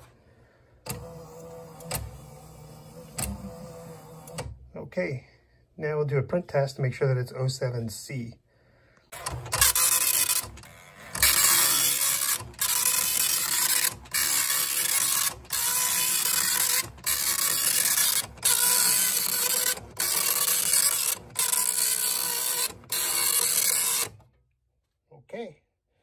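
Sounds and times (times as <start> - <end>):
dot-matrix printer buzzing: 0.9 - 4.5, 9.1 - 24.2.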